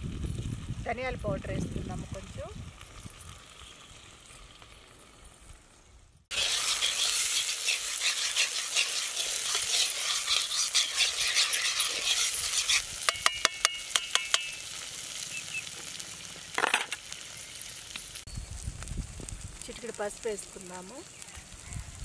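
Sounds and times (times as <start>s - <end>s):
paste sizzling in hot oil: 2.1s - 18.7s
metal spatula scraping pan: 6.3s - 14.6s
spatula tapping against pan: 13.1s - 14.5s.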